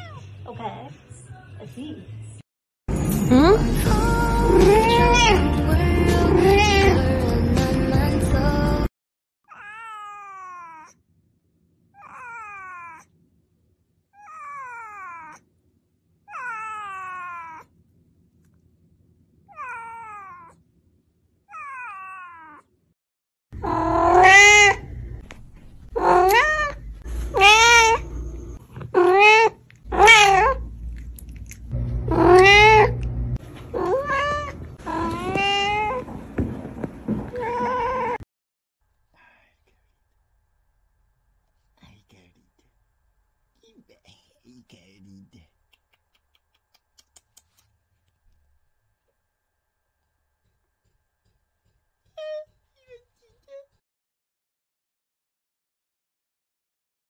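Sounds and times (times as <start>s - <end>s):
kitten meowing: 4.6s - 5.4s, 23.6s - 24.9s, 26.0s - 28.1s, 29.0s - 30.6s, 32.1s - 33.0s, 33.7s - 36.0s
cat meowing: 4.6s - 5.5s, 6.4s - 7.1s, 9.5s - 11.0s, 12.0s - 13.1s, 14.2s - 15.4s, 16.3s - 17.7s, 19.5s - 20.6s, 21.5s - 22.6s, 23.6s - 24.9s, 26.0s - 28.3s, 28.9s - 30.6s, 32.1s - 33.0s, 33.7s - 36.0s, 37.3s - 38.2s.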